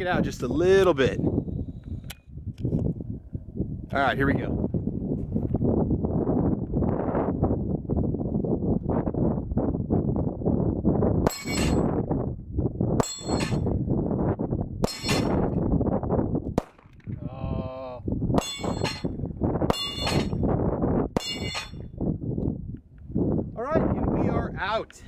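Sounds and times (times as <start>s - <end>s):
wind buffeting microphone: 0.0s - 25.0s
steel target paddle ringing: 18.4s - 19.1s, 19.7s - 20.4s, 21.2s - 21.9s.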